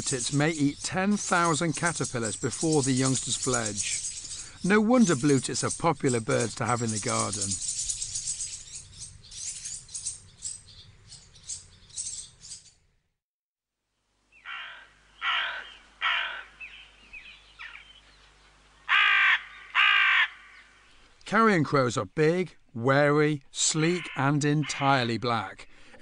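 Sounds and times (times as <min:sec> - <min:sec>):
faint high bird twittering: 0:00.0 - 0:12.8
crow cawing: 0:14.4 - 0:16.8, 0:18.9 - 0:20.8, 0:23.8 - 0:24.8.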